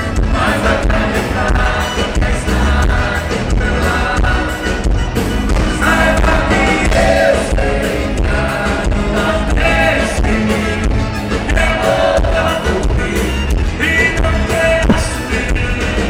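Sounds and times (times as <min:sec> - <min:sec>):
live band playing: 0:00.0 - 0:06.6, 0:10.4 - 0:14.0
man singing: 0:11.5 - 0:16.0.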